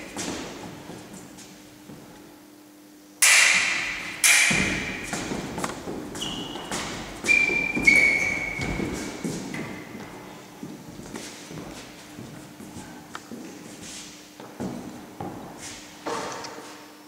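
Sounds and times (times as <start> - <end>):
feet thudding on wooden floor: 0.0 - 2.1, 4.5 - 12.3
fencing blades clashing: 3.2 - 9.9.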